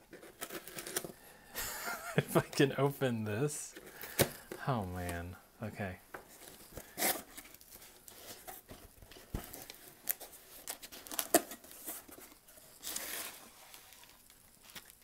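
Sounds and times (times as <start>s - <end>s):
bubble wrap crinkling: 6.2s - 15.0s.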